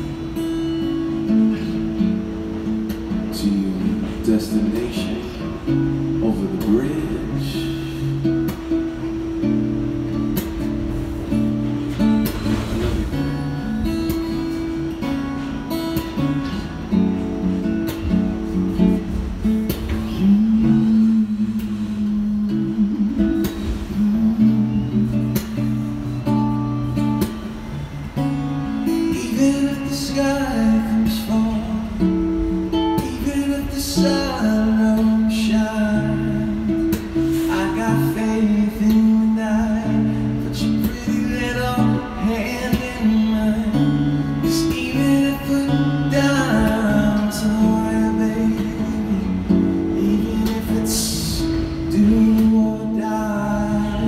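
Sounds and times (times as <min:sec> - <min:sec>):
acoustic guitar strumming: 0:00.0 - 0:54.0
man singing: 0:03.0 - 0:08.6, 0:19.8 - 0:25.8, 0:28.8 - 0:54.0.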